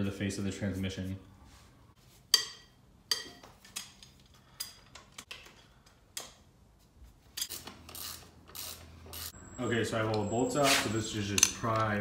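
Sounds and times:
metallic clicks of tools and bolts: 2.3s - 6.4s, 7.3s - 9.4s, 11.3s - 12.0s.

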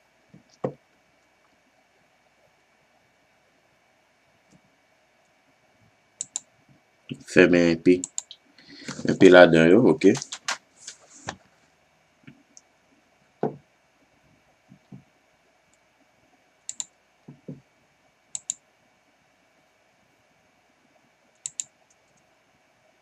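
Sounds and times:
computer mouse clicks: 6.2s - 6.5s, 8.0s - 9.0s, 16.7s - 16.9s, 18.3s - 18.6s, 21.4s - 22.3s.

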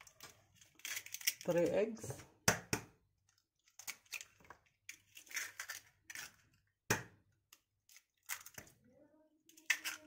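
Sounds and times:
eggshell crackling: 0.0s - 1.8s, 3.0s - 8.8s.

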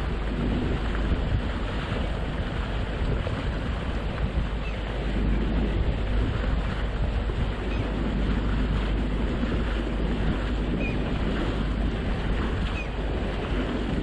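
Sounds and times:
rushing water: 0.0s - 14.0s
wind rumble on microphone: 0.0s - 14.0s.

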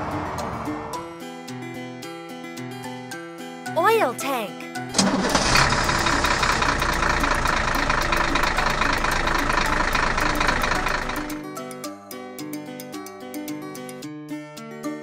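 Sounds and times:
truck engine running: 5.0s - 11.4s.

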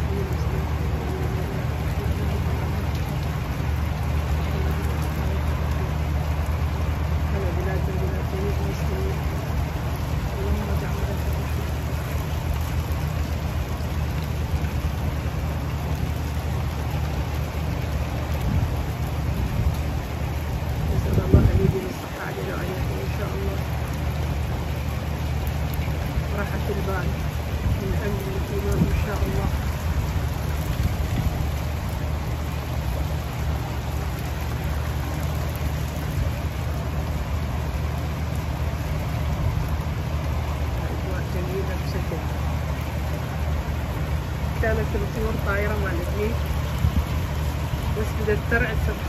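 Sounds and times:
rain falling: 0.0s - 49.0s
wind buffeting microphone: 18.4s - 23.2s, 26.8s - 32.5s, 44.7s - 49.0s.

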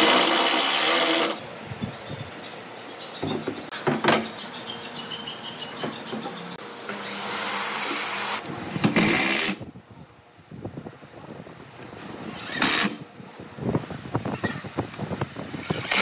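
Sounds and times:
cordless drill driving a screw: 12.2s - 13.0s.

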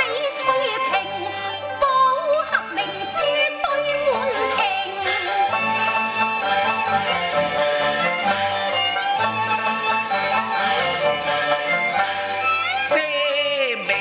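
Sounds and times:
bowed-string ensemble melody: 0.0s - 14.0s.

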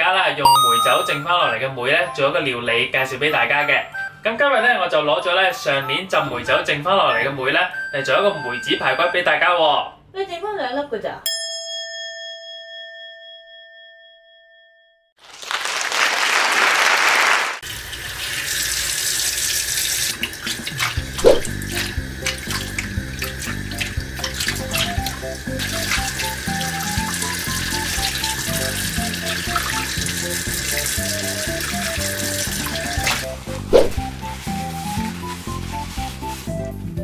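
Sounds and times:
bell-like chime: 0.4s - 1.6s, 11.3s - 15.1s
background music: 0.4s - 9.2s, 23.2s - 37.0s
tap water running into a sink: 17.6s - 34.2s.

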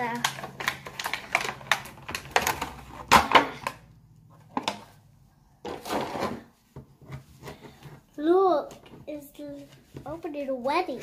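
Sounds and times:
plastic wrapper crinkling: 0.0s - 3.8s.

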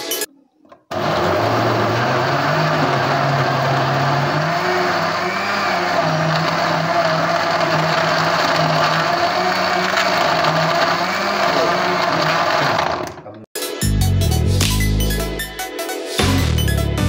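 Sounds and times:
blender motor crushing ice: 0.9s - 13.3s.

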